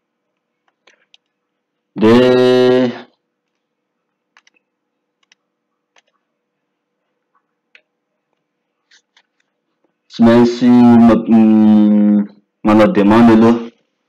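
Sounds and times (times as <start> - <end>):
keyboard and mouse clicks: 0.4 - 1.4, 4.3 - 6.2, 7.3 - 9.6.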